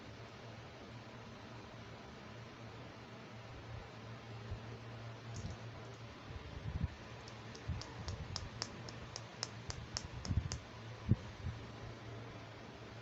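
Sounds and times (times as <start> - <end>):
plastic toy scissors clicking: 7.3 - 10.6.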